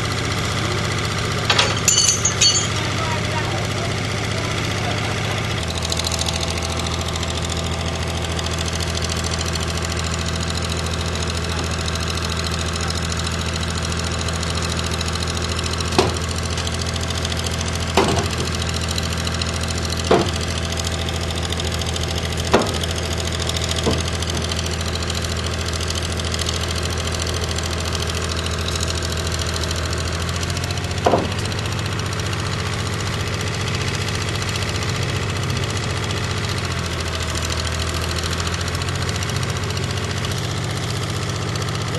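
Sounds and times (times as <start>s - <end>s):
heavy vehicle engine running: 0.0s - 41.9s
sharp knocks: 18.0s - 18.5s, 20.1s - 20.4s, 22.5s - 22.9s, 23.8s - 24.5s, 31.0s - 31.5s.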